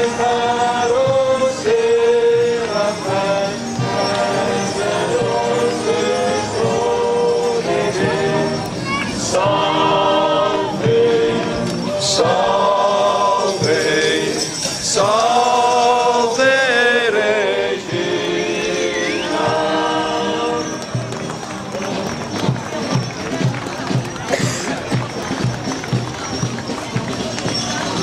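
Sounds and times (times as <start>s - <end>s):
choir singing: 0.0s - 21.1s.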